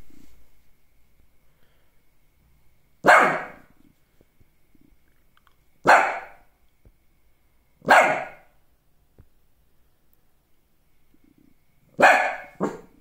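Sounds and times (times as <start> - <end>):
dog barking: 3.0 - 3.7, 5.8 - 6.5, 7.8 - 8.5, 12.0 - 13.0.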